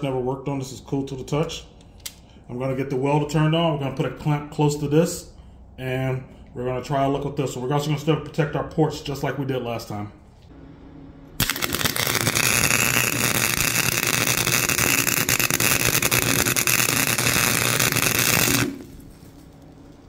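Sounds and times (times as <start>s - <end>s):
welder arc crackling: 11.4s - 19.7s.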